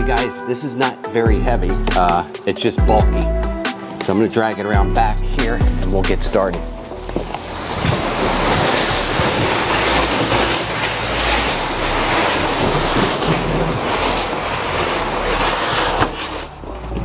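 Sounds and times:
cardboard box scraping on bricks: 0:07.0 - 0:17.0.

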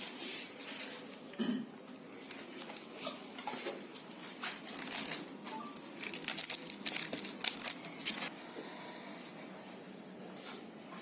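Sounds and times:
packaging crinkling and rustling: 0:02.3 - 0:08.3.

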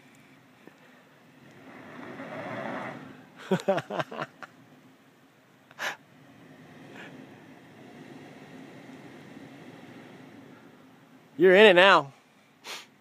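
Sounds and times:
engine revving: 0:01.3 - 0:03.4, 0:06.1 - 0:11.2
person laughing: 0:03.4 - 0:04.5
short puff of noise: 0:12.6 - 0:12.9.

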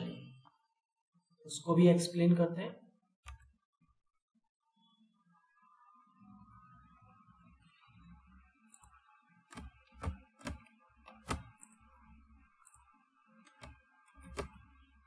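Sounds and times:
mouse and keyboard clicks: 0:08.7 - 0:11.8, 0:12.6 - 0:14.6.

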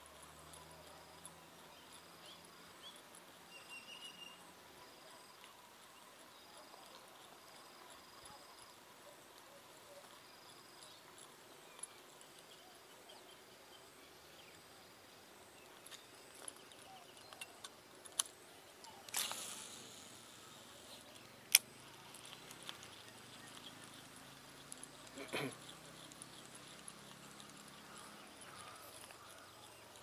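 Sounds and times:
insect chirps: 0:00.0 - 0:30.0
tackle handling clicks: 0:17.3 - 0:20.0
fishing reel whirring: 0:19.0 - 0:23.4.

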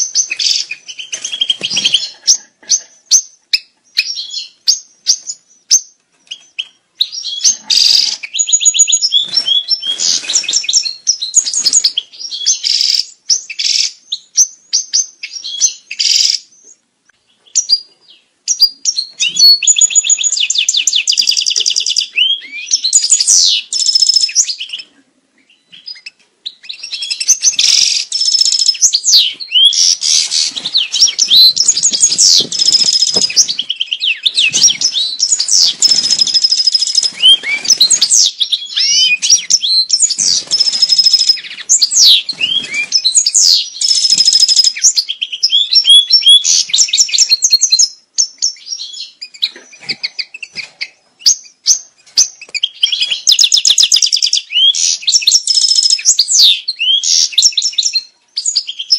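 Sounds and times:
goldfinch twittering song: 0:25.5 - 0:58.9.

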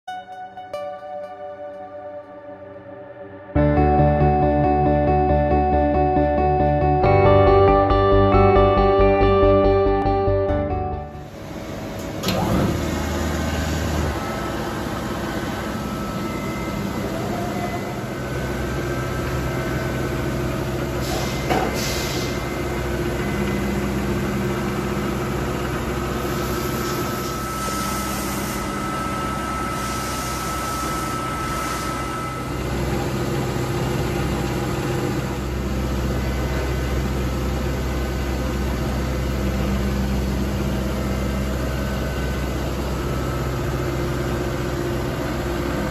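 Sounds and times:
milling machine motor hum: 0:11.2 - 0:45.9
thin whining tones: 0:13.9 - 0:19.2, 0:26.2 - 0:35.2
hiss: 0:21.0 - 0:22.4.

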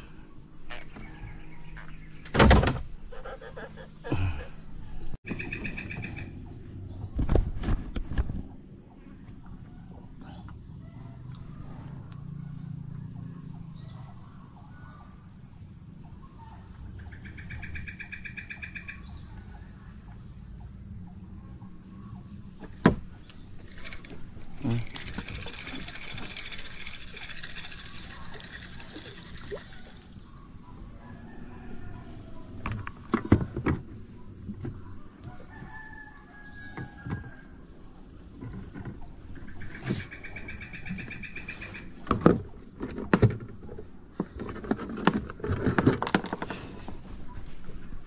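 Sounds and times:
rooster crowing: 0:10.8 - 0:12.6, 0:31.0 - 0:32.5, 0:35.2 - 0:37.6.

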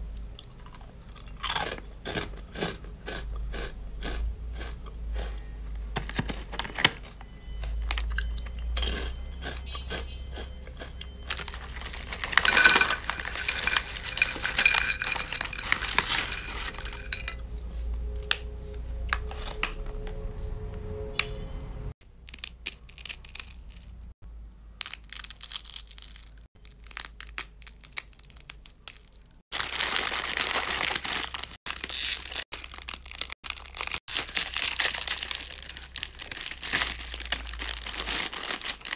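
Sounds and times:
plastic bag crinkling: 0:06.0 - 0:08.3, 0:11.2 - 0:17.4, 0:25.8 - 0:38.9
snacks clattering onto glass plate: 0:08.8 - 0:17.4.

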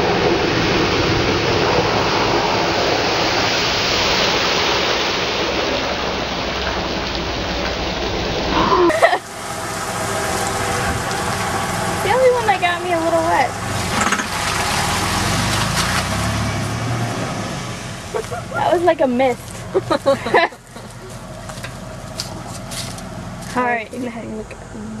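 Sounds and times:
tyres throwing water and mud: 0:00.0 - 0:24.0
truck engine working: 0:00.0 - 0:25.0
truck engine idling: 0:05.1 - 0:25.0.

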